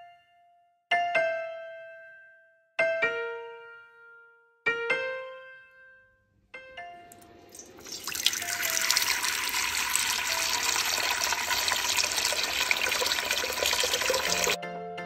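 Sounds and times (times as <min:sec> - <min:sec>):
water running into steel pot: 0:07.5 - 0:14.6.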